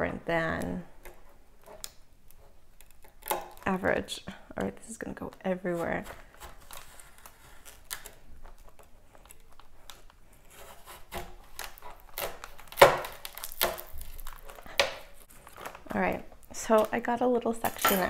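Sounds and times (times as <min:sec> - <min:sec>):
knife cracking hard candy shell: 0:11.0 - 0:15.8.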